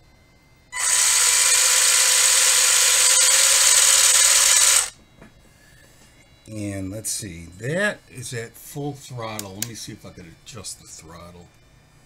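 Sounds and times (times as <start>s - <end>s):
electric toy car motor whining: 0.8s - 5.0s.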